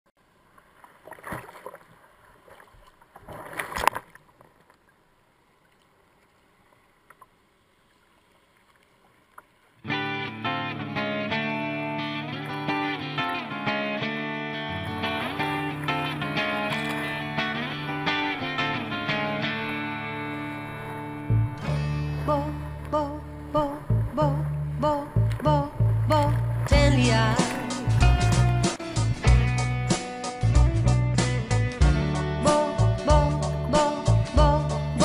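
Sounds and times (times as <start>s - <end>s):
faint water noise: 0.2s - 29.1s
sea water splashing over kayak deck: 0.6s - 4.6s, 14.8s - 21.2s, 21.9s - 28.8s
guitar music: 9.8s - 35.0s.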